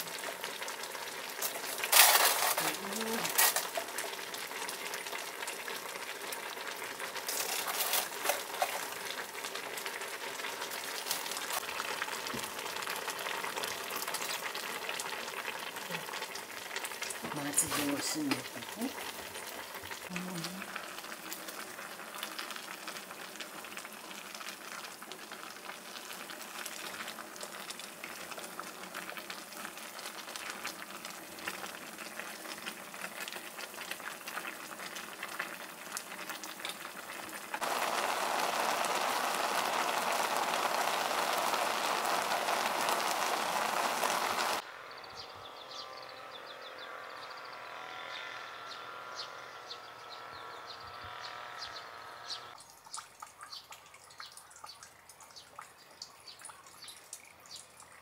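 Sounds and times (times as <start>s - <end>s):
pot simmering with crackling: 0.0s - 44.7s, 51.1s - 58.0s
birds chirping outdoors: 2.2s - 3.6s, 15.8s - 20.6s, 43.8s - 58.0s
loud even hiss: 37.6s - 44.6s.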